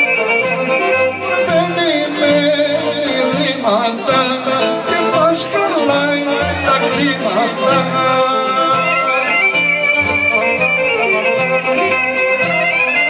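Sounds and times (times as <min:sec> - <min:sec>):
folk music played live: 0:00.0 - 0:13.0.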